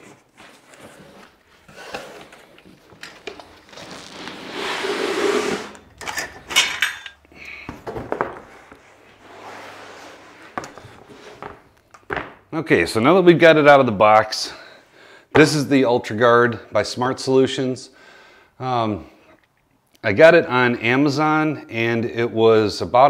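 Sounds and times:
cardboard rustling and scraping: 0.0 - 5.9, 7.9 - 11.7
rubber flap sliding scrape: 3.6 - 5.9.

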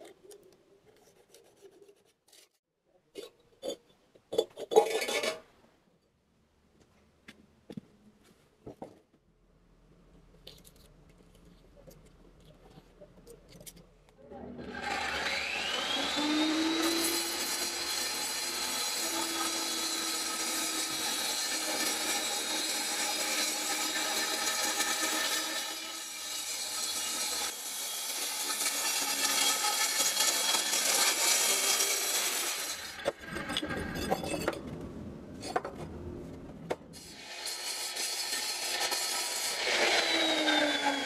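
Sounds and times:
angle grinder cutting brick: 14.4 - 34.5, 36.9 - 41.0.

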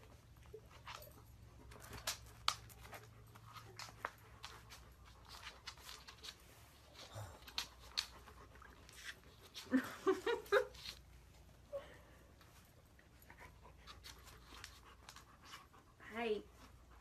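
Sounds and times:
clicks and rustles: 0.7 - 9.7.

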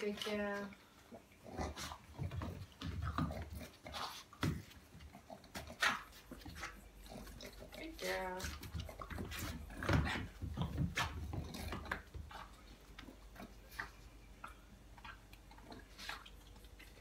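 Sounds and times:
dog licking and lapping: 11.4 - 17.0.

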